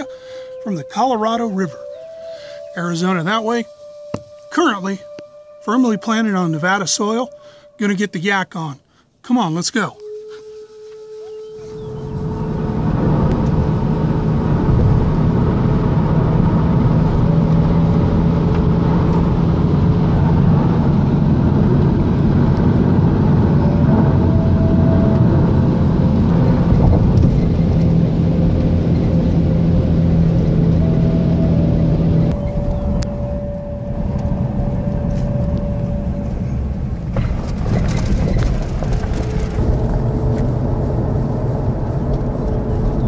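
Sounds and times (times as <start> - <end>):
engine running with low hum: 10.0 - 43.0.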